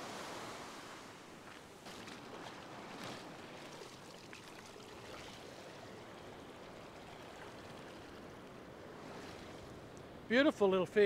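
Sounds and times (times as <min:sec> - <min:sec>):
surf washing over sand: 0:00.0 - 0:05.6.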